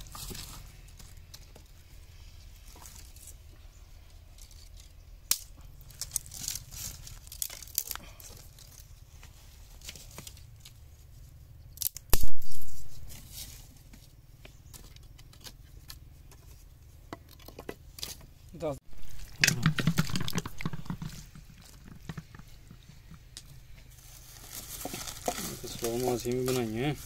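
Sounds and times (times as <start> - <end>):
twigs snapping and rustling: 4.3 - 8.9, 11.7 - 13.6, 17.2 - 18.3, 23.0 - 27.0.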